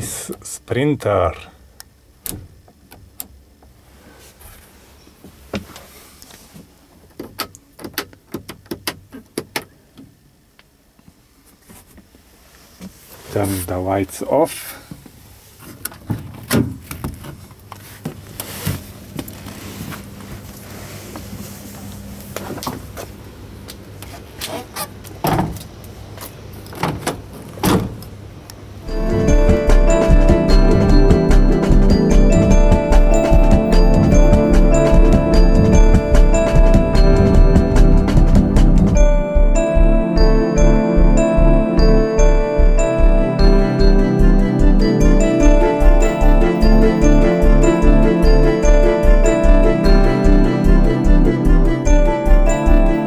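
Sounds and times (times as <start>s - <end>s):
van door latch clicks and knocks: 7.2s - 9.7s
steady low hum: 25.5s - 53.0s.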